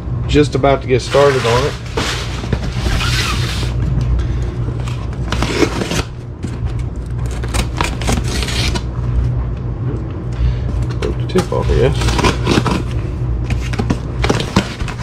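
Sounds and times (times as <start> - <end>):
knife slitting packing tape: 1.1 - 3.8, 5.3 - 6.1, 7.2 - 8.9, 11.9 - 12.8.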